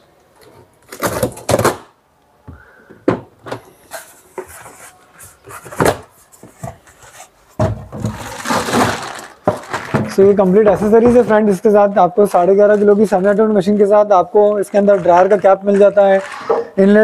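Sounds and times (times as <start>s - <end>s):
plastic bags rustling: 7.9s - 11.4s, 12.3s - 17.0s
polystyrene scraping: 8.0s - 10.2s, 14.4s - 16.8s.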